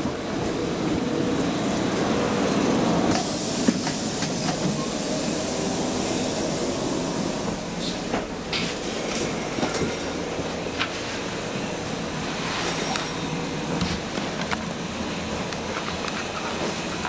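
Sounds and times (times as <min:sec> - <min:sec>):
tram equipment hum: 0:00.0 - 0:17.0
loud hiss: 0:03.1 - 0:08.1.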